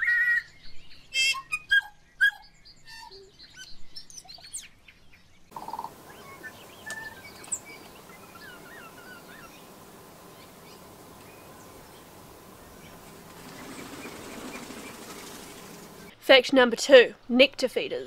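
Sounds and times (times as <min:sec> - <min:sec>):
bird singing: 0:00.3 - 0:16.2
steady hiss: 0:05.6 - 0:16.1.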